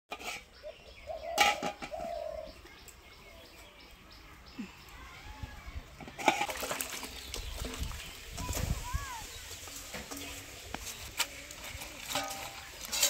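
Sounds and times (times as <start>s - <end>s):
pot and lid clanking: 1.2s - 2.1s, 6.0s - 6.7s, 11.8s - 13.0s.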